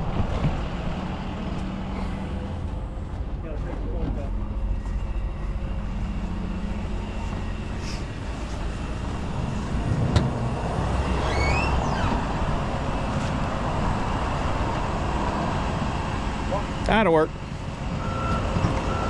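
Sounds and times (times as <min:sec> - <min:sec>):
heavy diesel engine running: 0:00.0 - 0:19.0
brief rising whistle: 0:11.2 - 0:12.2.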